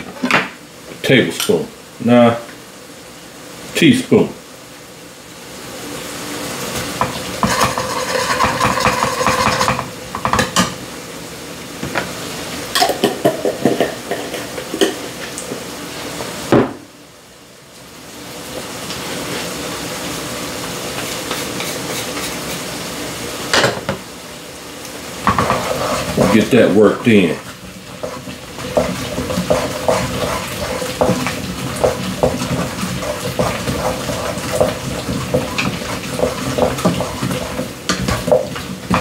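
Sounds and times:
food sizzling: 0.0s - 39.0s
spoon scraping cooking pot: 7.4s - 9.8s, 25.3s - 26.7s, 27.3s - 39.0s.

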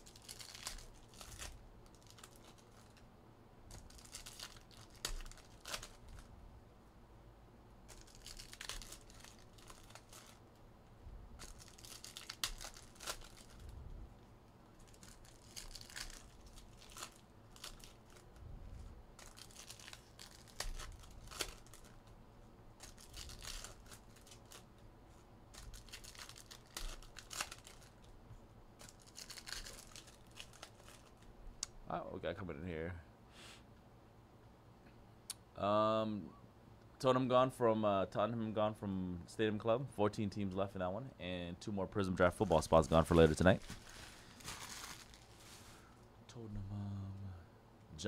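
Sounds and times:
wrappers crinkling and tearing: 0.0s - 3.1s, 3.7s - 6.3s, 7.9s - 10.4s, 11.4s - 13.7s, 14.7s - 22.2s, 22.8s - 28.2s, 28.8s - 31.4s, 42.2s - 46.0s.

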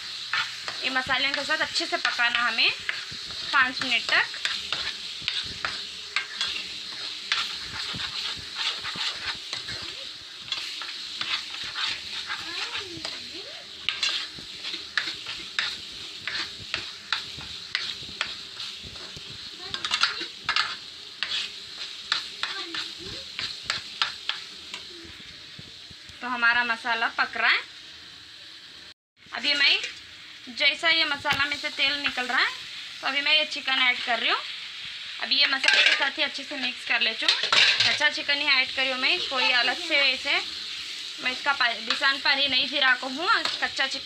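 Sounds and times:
spatula scraping and knocking pan: 0.0s - 24.9s, 35.4s - 36.2s, 37.2s - 38.2s, 41.7s - 44.0s
paste sizzling in oil: 0.0s - 44.0s.

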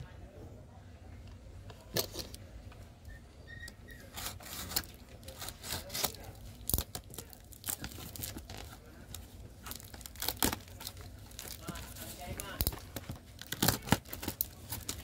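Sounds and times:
knife scraping: 3.8s - 6.2s
tape and cardboard tearing: 3.9s - 15.0s.

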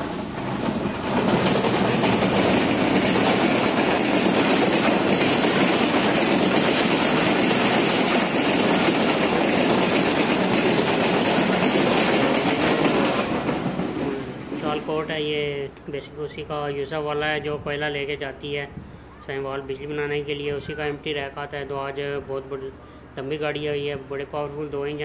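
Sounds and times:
wheels clacking over rail joints: 0.0s - 15.2s
train passing with rumble: 0.0s - 18.8s.

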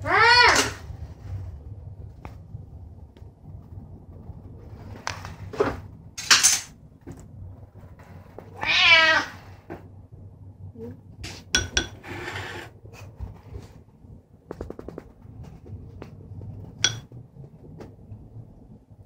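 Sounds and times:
cat meowing: 0.0s - 0.8s, 8.4s - 9.6s.

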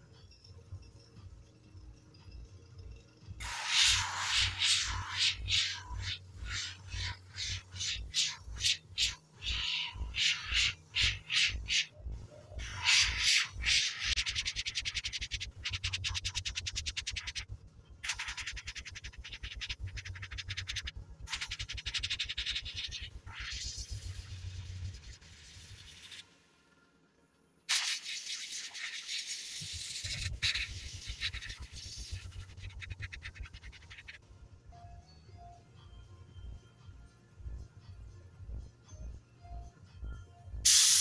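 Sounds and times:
airbrush spraying hiss: 3.4s - 11.9s, 27.7s - 32.8s, 40.7s - 41.0s.

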